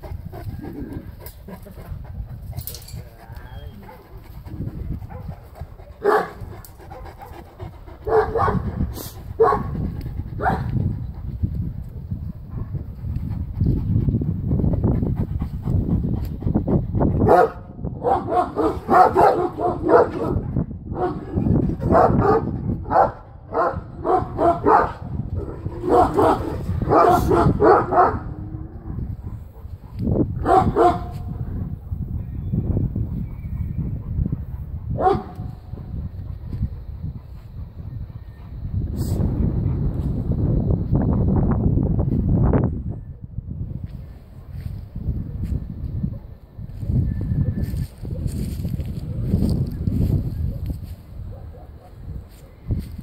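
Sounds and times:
large dog barking: 5.0s - 9.8s, 10.4s - 10.7s, 17.2s - 29.7s, 30.3s - 31.7s, 34.9s - 35.9s, 51.3s - 52.6s.

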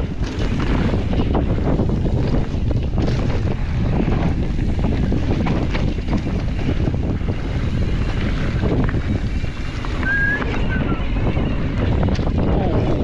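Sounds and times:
bike clicks and knocks: 0.0s - 10.7s, 11.7s - 12.6s
wind buffeting microphone: 0.0s - 13.0s.

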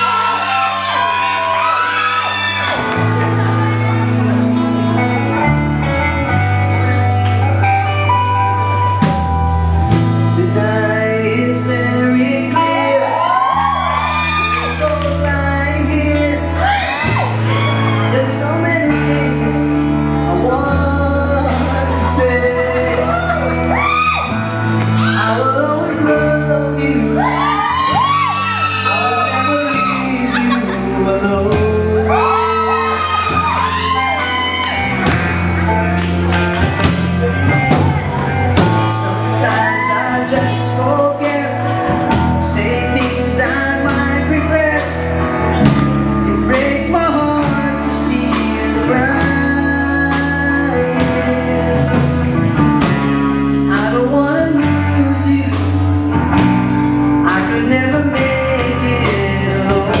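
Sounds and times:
drums: 0.0s - 60.0s
electric guitars: 0.0s - 60.0s
man singing into a microphone: 9.9s - 34.5s, 38.6s - 56.5s, 57.1s - 60.0s.

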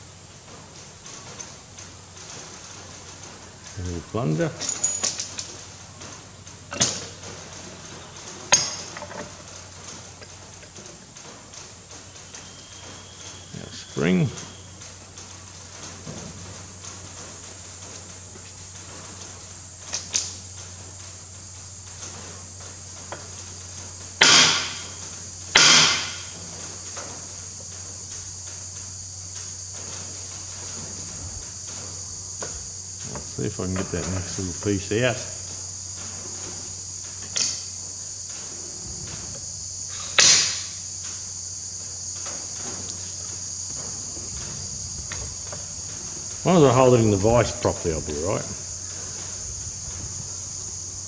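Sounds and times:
high-pitched hiss: 0.0s - 51.0s
steady low hum: 0.0s - 51.0s.

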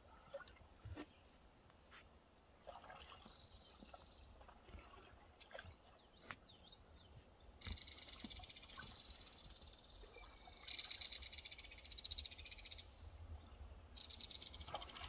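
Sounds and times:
water splashes and drips: 0.1s - 1.1s, 2.6s - 6.5s, 14.7s - 15.0s.

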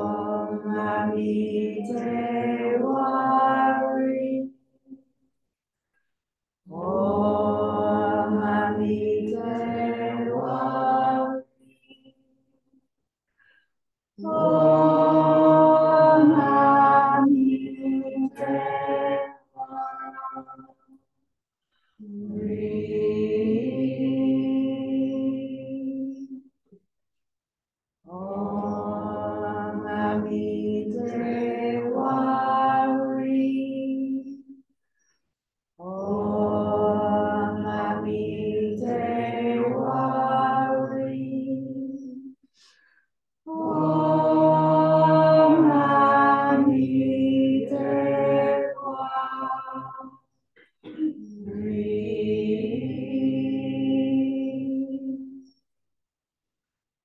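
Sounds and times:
woman and man chanting: 0.0s - 4.5s, 6.7s - 11.9s, 14.2s - 20.2s, 22.0s - 26.4s, 28.1s - 34.5s, 35.8s - 42.3s, 43.5s - 50.2s, 50.9s - 55.6s.

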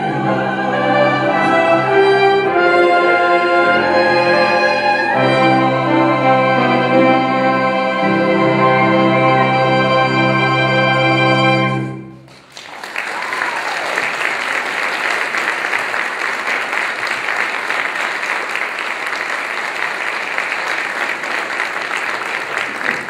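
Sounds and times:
choir singing sustained chord: 0.0s - 12.1s
audience applauding: 12.2s - 23.0s.

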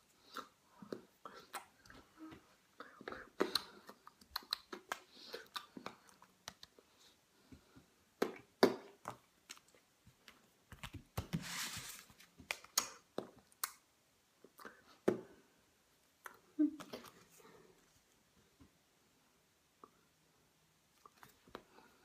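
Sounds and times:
book pages rustling: 10.7s - 12.6s.

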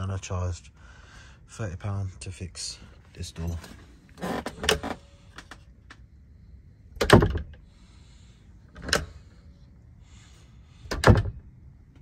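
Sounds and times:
door shutting with a clunk: 7.0s - 7.6s, 10.9s - 11.4s.

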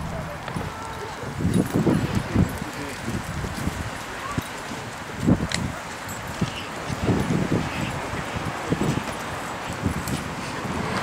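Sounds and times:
footsteps on paved road: 0.0s - 11.0s.

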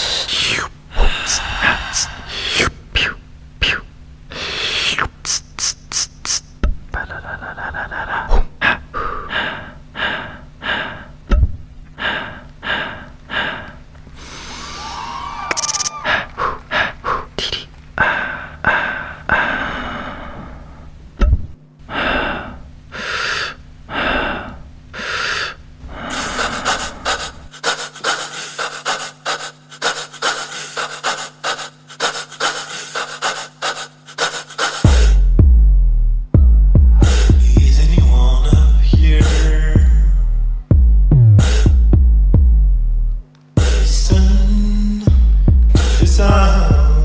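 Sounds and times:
rapid gasping breaths: 0.0s - 2.8s, 7.0s - 11.2s, 12.0s - 14.8s, 16.0s - 20.6s, 21.9s - 35.1s
low steady drone: 0.0s - 4.8s, 34.9s - 47.0s.

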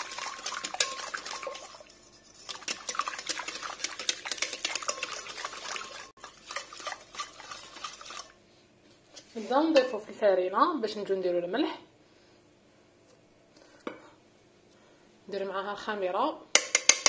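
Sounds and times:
wire whisk beating against glass bowl: 0.0s - 8.3s.

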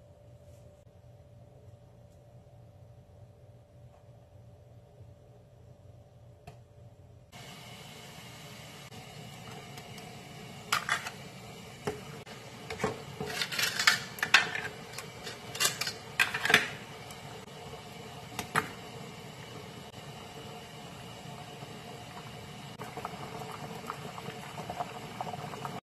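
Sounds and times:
metal strainer clinking: 13.2s - 16.7s.

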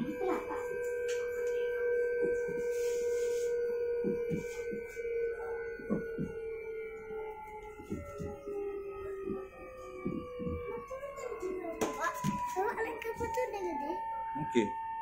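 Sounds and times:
train motor whine: 0.0s - 15.0s
soft low knocks: 3.6s - 13.5s.

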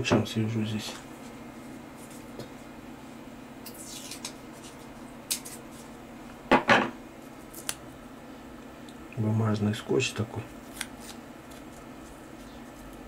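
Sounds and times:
paper tape crackle: 10.6s - 13.0s
paper tape handling: 10.6s - 13.0s.

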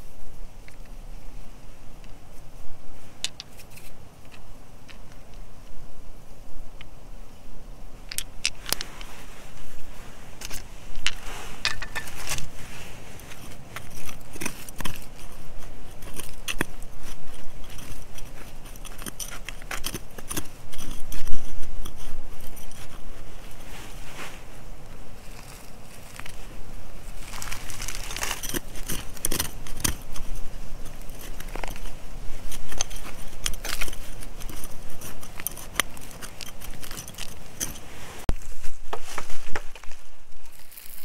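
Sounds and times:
metal clicking on stones: 3.2s - 5.4s, 8.1s - 9.0s, 10.4s - 12.6s, 13.2s - 23.7s, 27.1s - 37.8s, 40.4s - 41.0s
metal tool scraping soil: 3.3s - 5.1s, 8.5s - 38.4s, 39.1s - 41.0s.

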